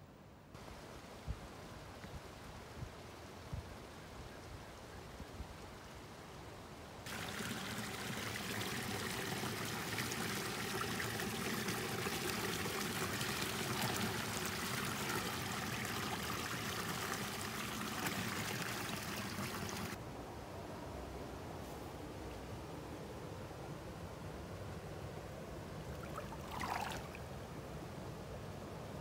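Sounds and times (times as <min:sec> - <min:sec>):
shallow stream rippling: 0:07.0 - 0:20.0, 0:25.7 - 0:27.5
water splashing over rock ledge: 0:26.0 - 0:27.2.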